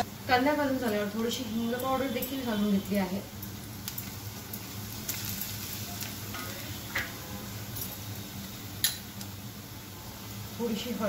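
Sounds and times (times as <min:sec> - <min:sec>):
onion frying in oil: 0:00.0 - 0:11.0.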